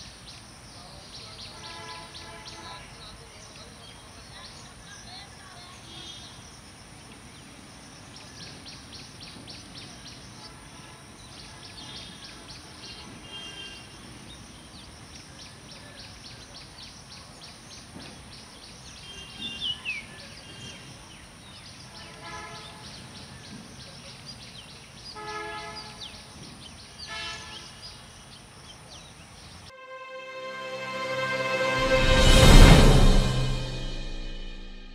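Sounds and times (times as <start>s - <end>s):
music: 29.7s - 34.9s
freight train rumbling: 30.5s - 34.9s.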